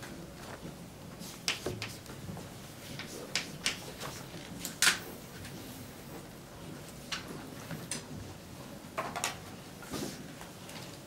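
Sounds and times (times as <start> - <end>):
chalk tapping on blackboard: 1.4 - 2.0, 3.0 - 3.8.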